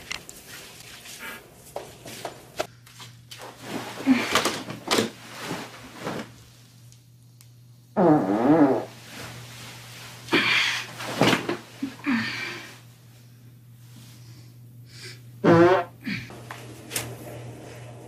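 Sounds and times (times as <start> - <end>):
steady low hum: 5.1 - 8.0, 8.8 - 18.0
woman farting: 8.0 - 8.9, 15.4 - 16.3.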